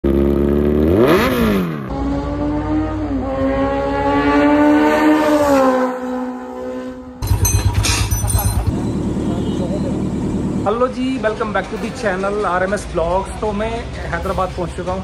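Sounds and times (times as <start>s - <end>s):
motorcycle engine at high revs: 0.0s - 10.7s
motorcycle engine idling and revving: 0.0s - 13.5s.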